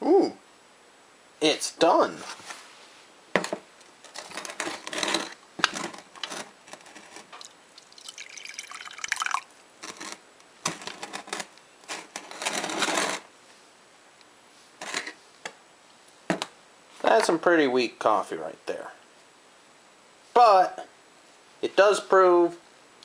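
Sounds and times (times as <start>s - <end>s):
coffee trickling into mug: 7.3s - 10.0s
pot and mug clinking: 7.8s - 9.5s.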